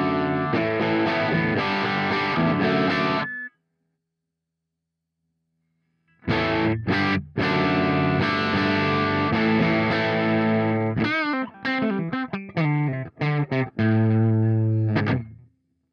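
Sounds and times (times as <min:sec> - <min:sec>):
electric guitar chords: 0:00.0 - 0:03.3, 0:06.2 - 0:15.4.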